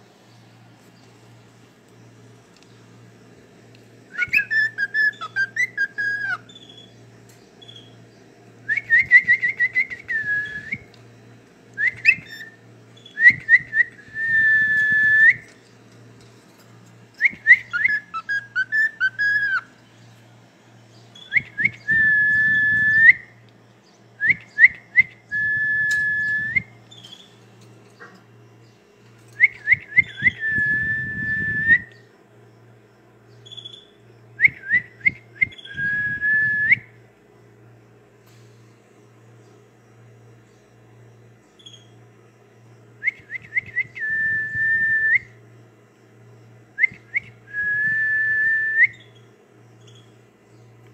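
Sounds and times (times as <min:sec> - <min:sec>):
cockatiel whistling: 0:04.2 - 0:06.9, 0:11.8 - 0:15.5, 0:17.2 - 0:19.7, 0:29.4 - 0:31.9.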